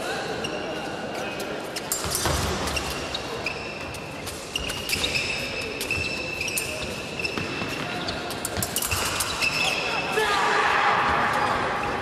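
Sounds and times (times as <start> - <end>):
shoes squeaking and tapping: 0.4 - 10.0.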